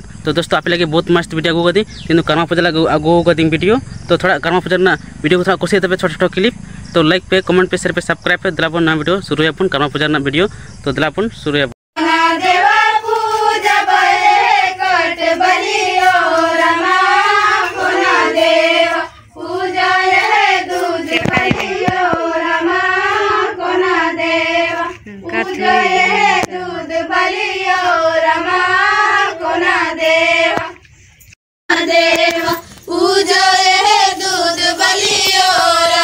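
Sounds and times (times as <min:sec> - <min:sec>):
girls singing in unison: 0:12.0 - 0:30.9, 0:31.7 - 0:36.0.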